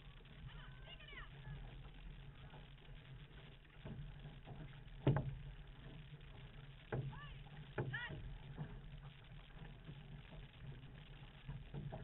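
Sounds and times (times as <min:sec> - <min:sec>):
water rushing along hull: 0:00.0 - 0:12.0
paddler calling: 0:06.9 - 0:08.8.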